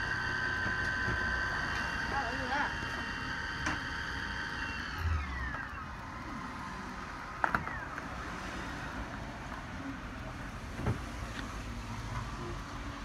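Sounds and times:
electric motor whine: 0.0s - 9.0s.

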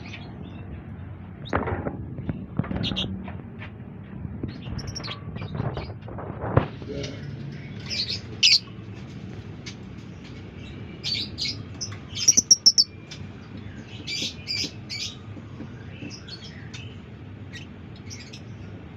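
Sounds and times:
lovebird chirping: 11.2s - 13.0s.

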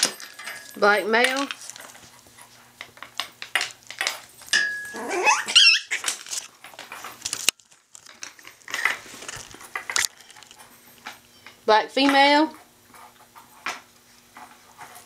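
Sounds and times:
clicks and scuffles of puppies: 1.2s - 4.5s, 5.4s - 11.6s
puppy yelping: 4.9s - 6.2s.

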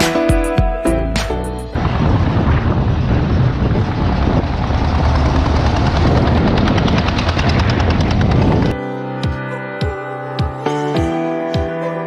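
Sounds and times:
road noise: 1.6s - 8.8s
wind buffeting microphone: 1.7s - 8.8s
motorcycle engine: 1.8s - 8.8s.

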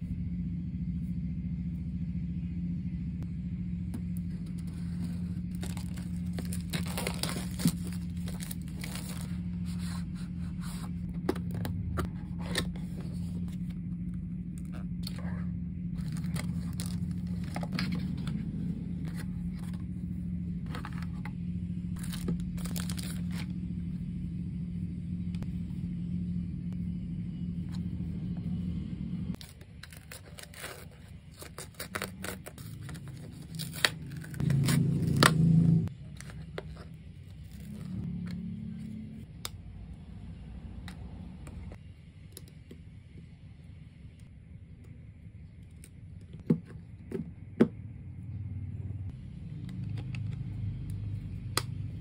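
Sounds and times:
low hum: 0.0s - 52.0s
plastic wrap crinkling: 5.5s - 9.4s.

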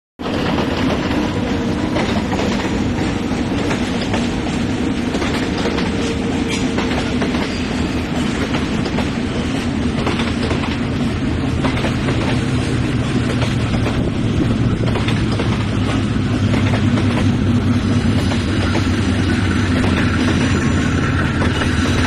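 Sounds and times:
train wheels clattering over joints: 0.2s - 22.0s.

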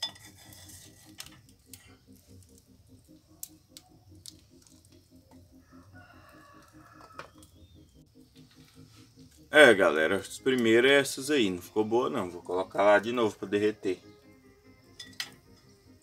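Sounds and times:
rooster crowing faintly: 5.5s - 7.5s.

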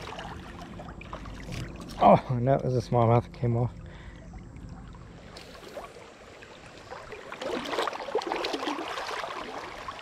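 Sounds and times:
river running over riffles: 3.8s - 10.0s.

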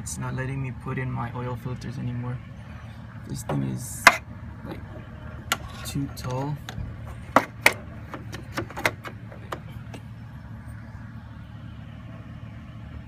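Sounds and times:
steady low hum: 0.0s - 13.0s
sharp clicks and light knocks: 5.5s - 10.0s.

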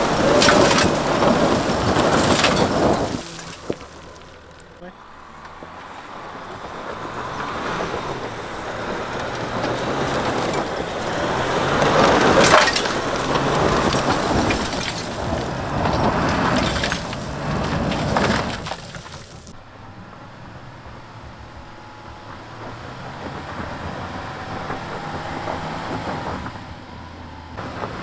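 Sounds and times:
stones cracking: 0.0s - 4.8s, 9.7s - 19.5s
tyres crunching over gravel: 0.0s - 20.1s, 27.6s - 28.0s
low engine drone: 19.5s - 28.0s.

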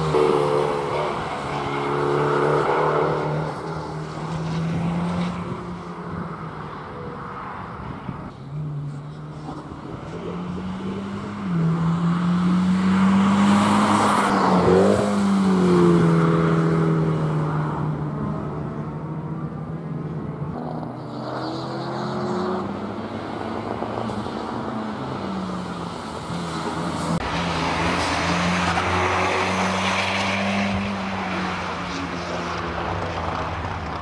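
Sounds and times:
race car engine at high revs: 0.0s - 19.6s, 20.5s - 34.0s.

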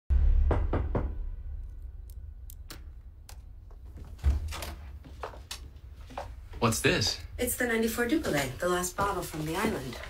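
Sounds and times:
low rumble: 0.1s - 4.6s
knocks on a door: 0.5s - 1.2s
sharp clicks: 2.0s - 3.5s.

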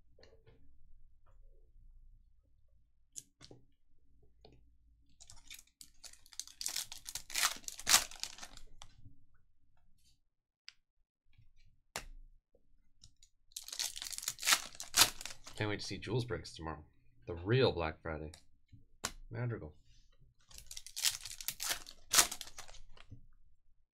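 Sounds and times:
foil wrapper crinkling and tearing: 5.2s - 8.7s, 13.6s - 15.6s, 20.5s - 23.0s.

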